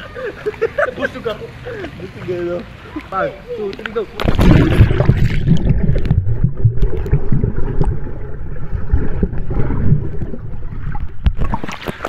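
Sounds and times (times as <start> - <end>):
muffled underwater rumble: 4.2 - 11.7
bubbles underwater: 4.2 - 12.0.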